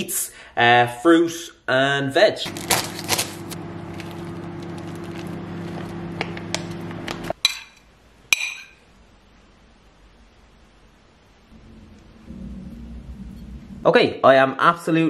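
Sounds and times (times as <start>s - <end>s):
spoon clinking against crockery: 7.4s - 8.8s
steady low hum: 11.3s - 14.2s.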